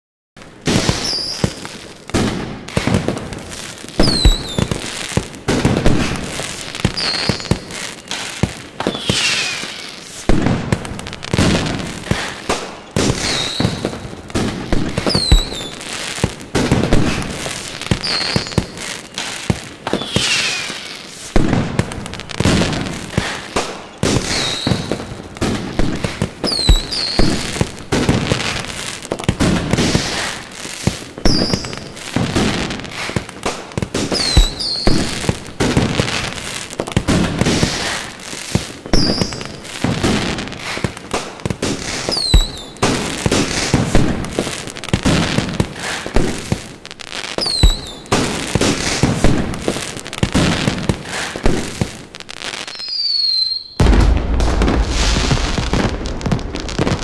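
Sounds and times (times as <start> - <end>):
fireworks bangs and crackling: 0.4 - 57.0
firework shells whistling: 0.7 - 1.7, 4.0 - 4.9, 6.1 - 10.4, 11.4 - 16.0, 17.1 - 21.3, 23.2 - 25.0, 26.4 - 28.6, 31.2 - 31.8, 34.0 - 36.3, 38.9 - 39.5, 41.9 - 43.8, 47.4 - 49.4, 52.6 - 57.0.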